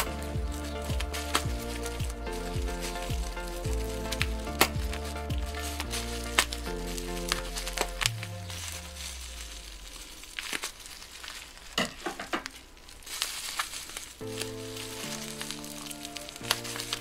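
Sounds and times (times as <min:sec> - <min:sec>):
background music with held notes: 0:00.0 - 0:10.1, 0:14.2 - 0:17.0
bubble wrap crinkling: 0:00.0 - 0:17.0.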